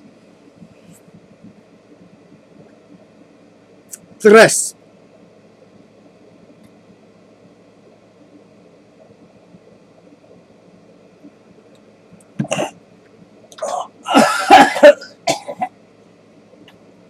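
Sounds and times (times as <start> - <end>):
man coughing and clearing throat: 12.4 - 12.8, 13.6 - 15.7.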